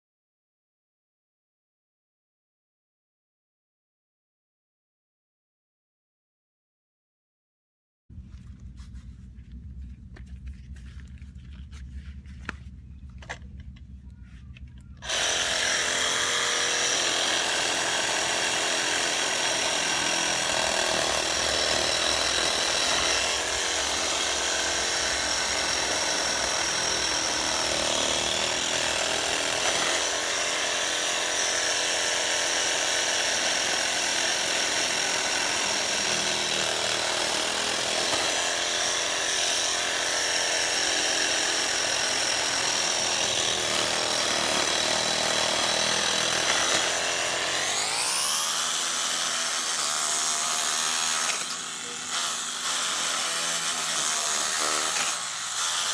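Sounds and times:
handling knocks and clicks: 8.4s - 15.0s
reciprocating saw cutting coconut: 15.0s - 55.9s.

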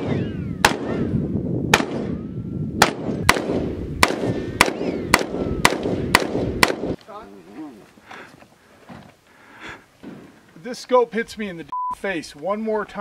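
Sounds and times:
rifle shots with echo: 0.0s - 1.1s, 1.7s - 2.2s, 2.8s - 7.0s.

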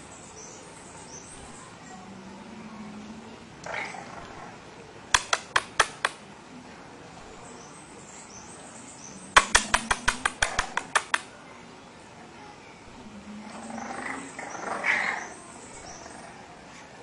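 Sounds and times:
sharp quick clicks: 5.1s - 6.2s, 9.3s - 11.3s.

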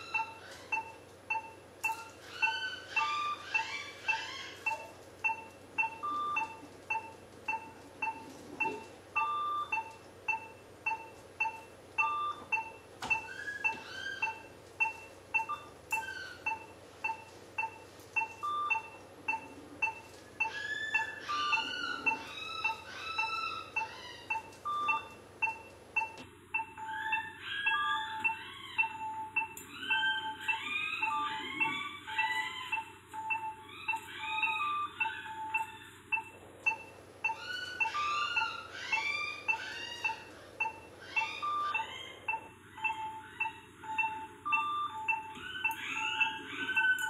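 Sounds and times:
patient monitor beeping: 0.0s - 47.0s
longer monitor tone: 17.6s - 47.0s.

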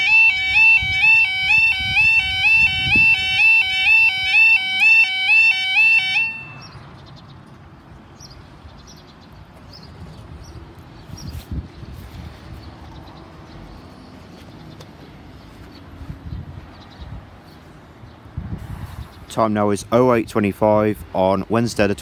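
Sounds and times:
two-tone crossing alarm: 0.0s - 6.8s
bird chirps: 5.8s - 7.5s.

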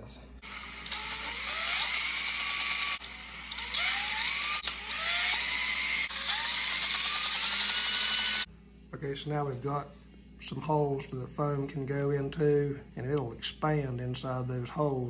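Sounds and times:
cordless drill whining: 0.4s - 8.5s.

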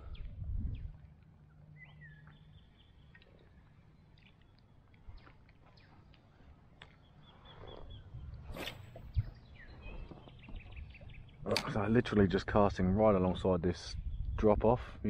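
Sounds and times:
birds chirping: 0.0s - 14.8s
fishing rod cast swish: 8.4s - 9.2s.

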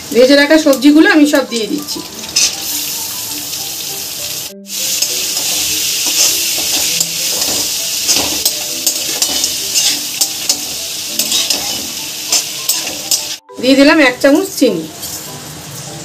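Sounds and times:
vegetables sizzling in oil: 0.0s - 16.0s
spatula scraping a pan: 5.1s - 13.3s.

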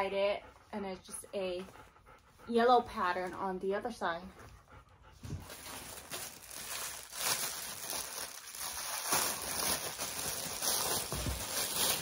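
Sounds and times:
plastic bag crinkling: 5.4s - 12.0s.

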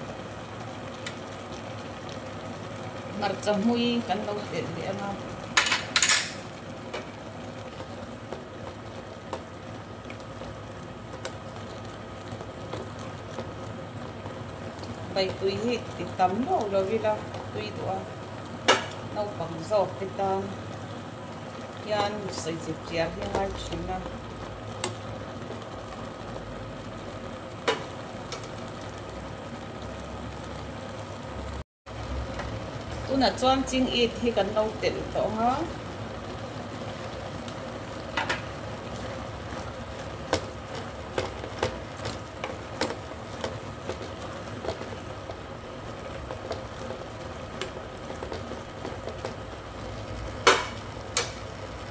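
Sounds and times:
stew simmering in a pot: 0.0s - 51.9s.

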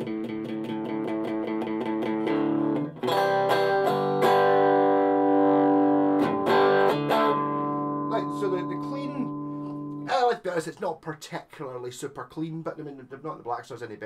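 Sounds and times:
electric guitar picked notes and chords: 0.0s - 10.1s.

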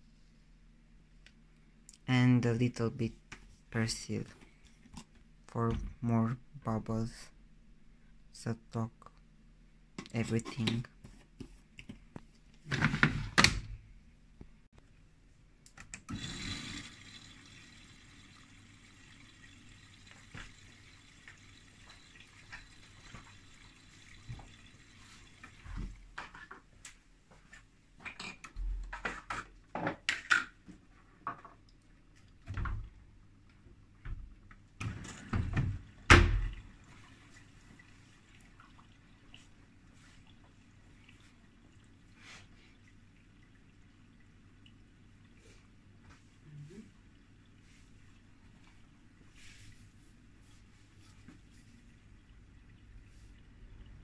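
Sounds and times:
washing machine filling with water: 16.0s - 26.2s, 34.7s - 54.0s.

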